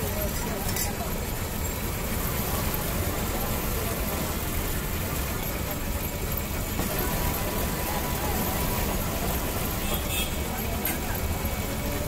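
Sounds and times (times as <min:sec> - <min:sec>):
juice press rollers humming: 0:01.2 - 0:09.9.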